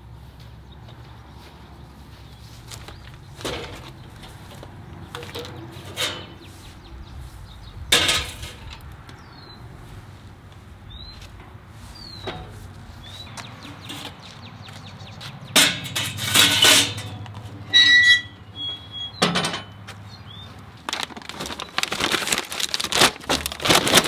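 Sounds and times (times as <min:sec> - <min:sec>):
bird chirping: 0:01.8 - 0:07.9, 0:09.1 - 0:09.8, 0:10.8 - 0:15.6, 0:17.8 - 0:20.7.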